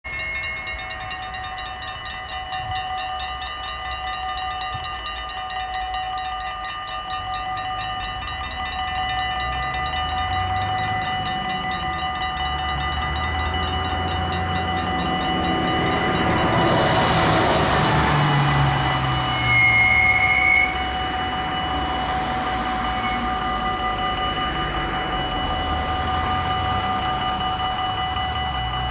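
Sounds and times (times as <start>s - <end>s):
level crossing warning bell: 0.0s - 28.9s
rushing noise: 9.6s - 28.9s.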